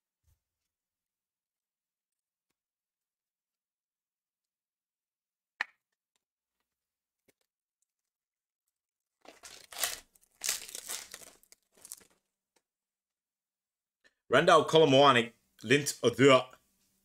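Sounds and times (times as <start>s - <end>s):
foil wrapper tearing and crinkling: 9.2s - 12.2s.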